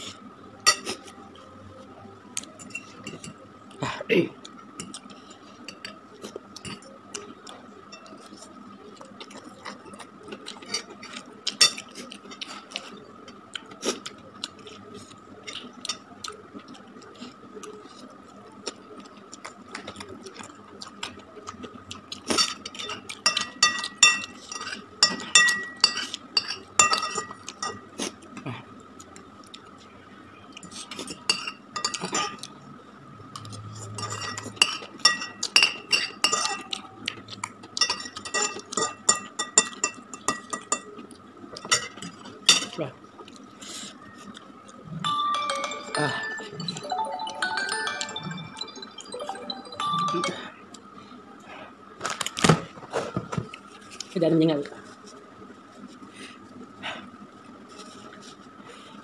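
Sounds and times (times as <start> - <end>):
faint high tone: 45.0 - 50.7.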